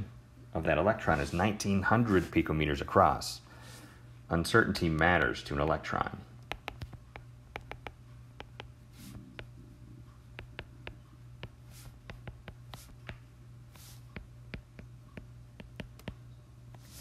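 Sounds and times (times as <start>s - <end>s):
low hum: 6.2s - 12.6s
stylus tapping on glass screen: 6.5s - 8.8s, 10.4s - 13.2s, 14.2s - 16.2s.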